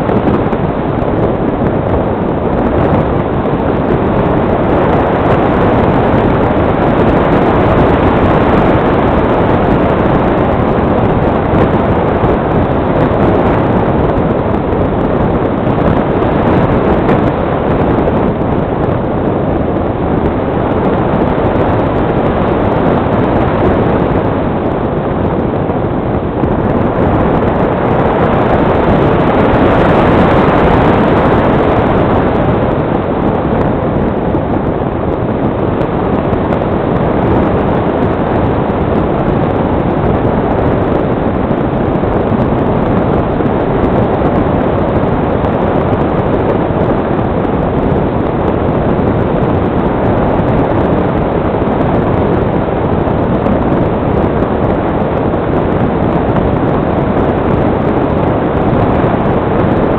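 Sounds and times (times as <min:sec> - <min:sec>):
airflow rushing over microphone: 0:00.0 - 0:59.9.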